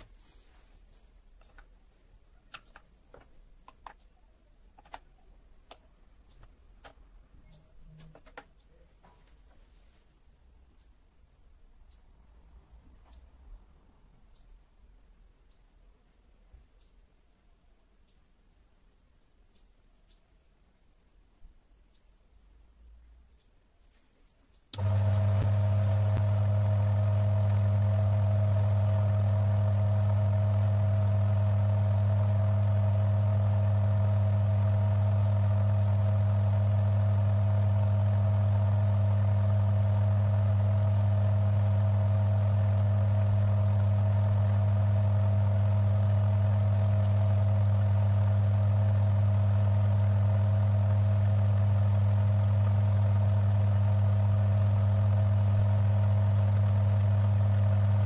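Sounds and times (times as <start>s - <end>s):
electric motor humming: 24.8s - 58.0s.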